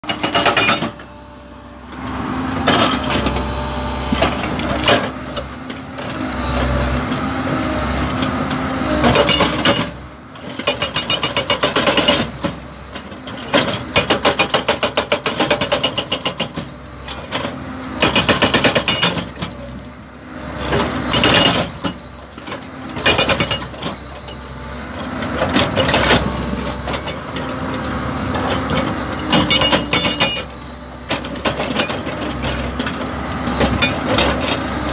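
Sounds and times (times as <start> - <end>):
hydraulic rock breaker hammering: 0.0 - 1.1, 9.0 - 12.6, 13.4 - 16.8, 18.0 - 19.7, 20.6 - 24.4, 28.5 - 34.6
excavator diesel engine running: 0.0 - 34.9.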